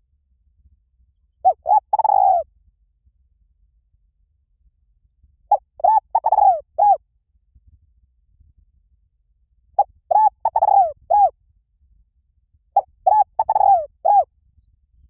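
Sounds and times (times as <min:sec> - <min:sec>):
dove cooing: 0:01.4 - 0:02.4, 0:05.5 - 0:07.0, 0:10.1 - 0:11.3, 0:12.8 - 0:14.2.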